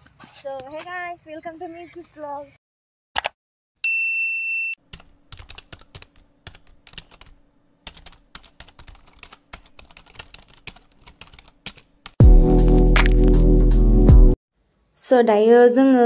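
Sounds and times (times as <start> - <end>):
high ding: 3.8 - 4.8
keyboard typing: 4.9 - 12.2
loud music: 12.2 - 14.4.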